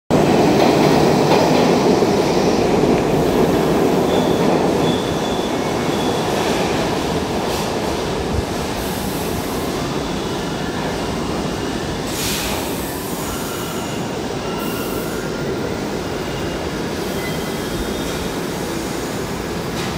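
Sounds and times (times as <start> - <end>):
subway train wheels rumbling: 0.1 - 19.9
high wheel squeal: 13.0 - 18.4.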